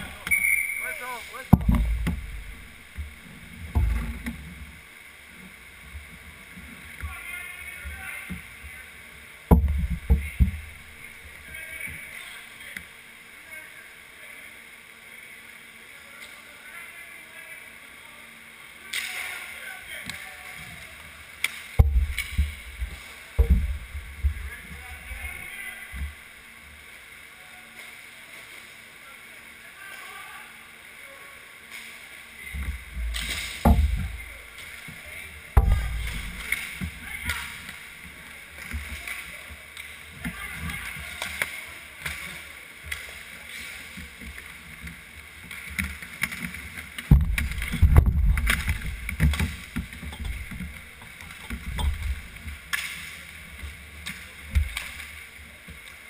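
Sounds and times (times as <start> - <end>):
background voices: 0.0 - 4.8
heavy close thumps: 1.4 - 4.5, 9.5 - 11.2, 21.8 - 24.5, 32.6 - 34.4, 35.5 - 37.0, 47.1 - 50.8
skate wheels rolling: 32.4 - 56.0
clacks of sticks and puck: 45.5 - 53.3, 54.0 - 56.0.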